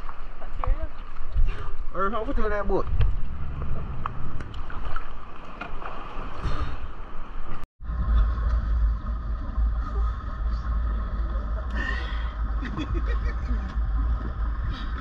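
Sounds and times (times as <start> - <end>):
boat engine rumbling: 0.0 - 15.0
water noise: 0.0 - 15.0
faint whine: 7.8 - 15.0.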